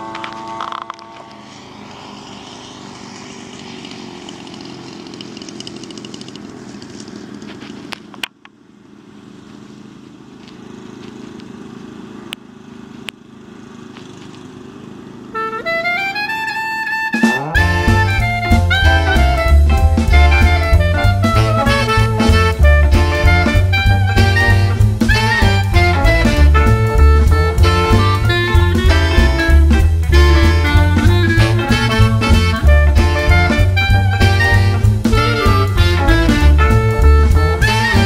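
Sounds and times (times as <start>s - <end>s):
jazz music with saxophone: 0.0s - 1.7s, 15.3s - 38.0s
model plane gas engine running: 0.0s - 17.2s.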